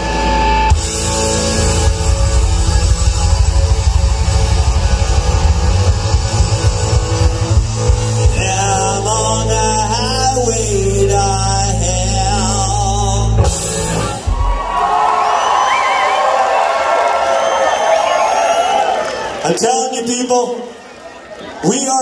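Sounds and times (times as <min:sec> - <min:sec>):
rock band playing: 0:00.0 - 0:15.8
person singing: 0:08.1 - 0:13.7.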